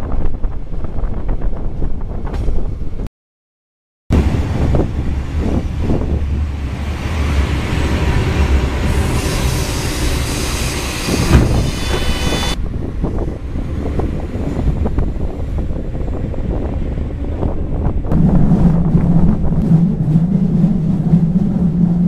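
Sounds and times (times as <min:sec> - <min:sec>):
diesel railcar rumbling: 0:00.0 - 0:03.1, 0:04.1 - 0:22.0
high squeal: 0:07.4 - 0:12.6.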